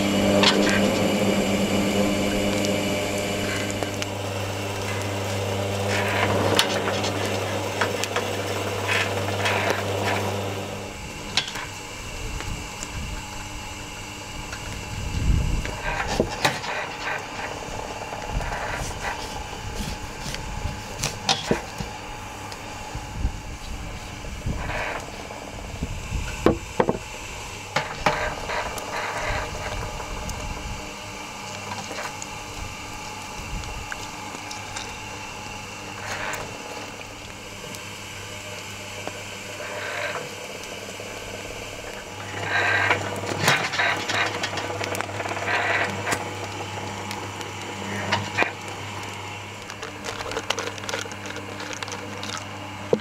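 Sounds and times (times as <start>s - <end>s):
low mechanical hum: 0.0s - 53.0s.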